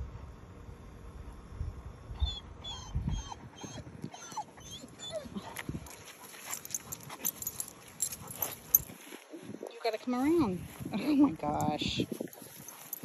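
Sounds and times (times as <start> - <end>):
dog whining: 2.2 - 5.6.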